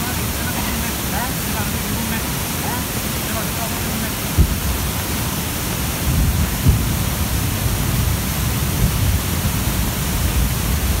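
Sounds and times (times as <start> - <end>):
water rushing over rocks: 0.0 - 11.0
low thumps: 4.3 - 5.0, 6.1 - 8.1.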